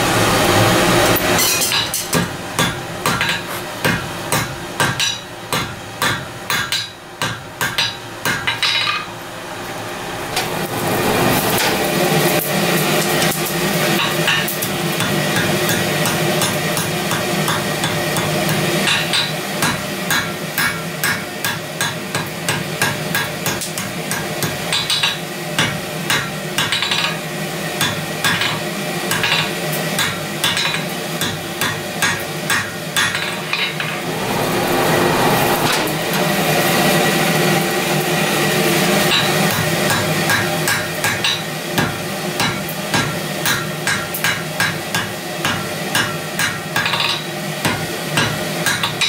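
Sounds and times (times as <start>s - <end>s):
hammer striking steel on anvil: 1.3s - 9.1s, 14.0s - 27.2s, 27.8s - 34.4s, 39.0s - 49.0s.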